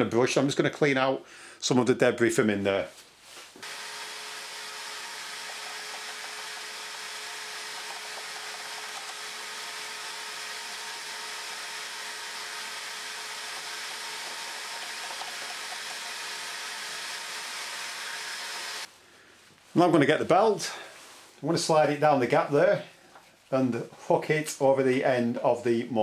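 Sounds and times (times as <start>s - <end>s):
vacuum cleaner running: 3.6s - 18.9s.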